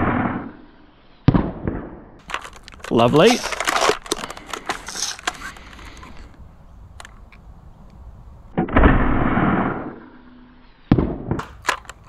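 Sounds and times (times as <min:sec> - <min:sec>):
rough scraping priming slide: 0:02.2 - 0:08.0, 0:11.4 - 0:12.0.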